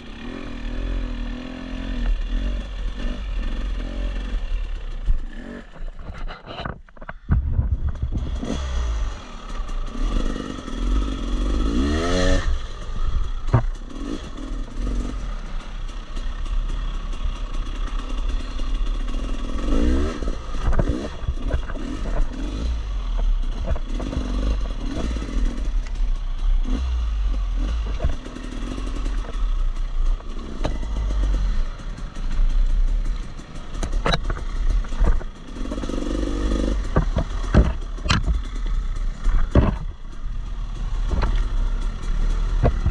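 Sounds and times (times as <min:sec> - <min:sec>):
dirt bike engine revving: 0:00.0 - 0:06.3, 0:07.4 - 0:42.9
bike clattering over rough ground: 0:27.8 - 0:42.9.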